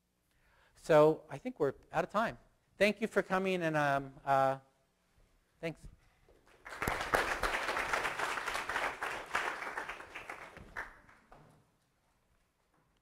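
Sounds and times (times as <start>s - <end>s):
audience applauding: 6.4s - 11.4s.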